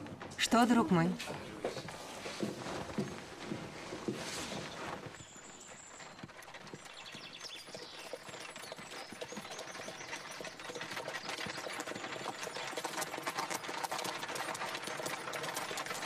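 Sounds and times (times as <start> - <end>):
horse hoofbeats: 0.0 - 16.0
horse-drawn carriage rattling: 0.0 - 16.0.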